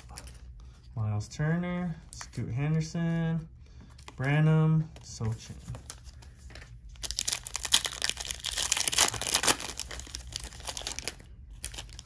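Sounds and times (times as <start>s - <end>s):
wrapper tearing and crinkling: 7.0s - 12.0s.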